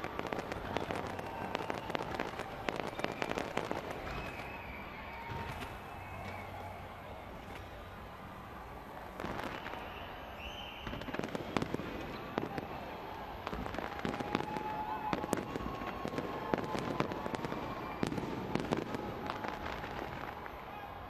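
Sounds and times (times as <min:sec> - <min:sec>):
fireworks bangs and crackles: 0:00.0 - 0:21.0.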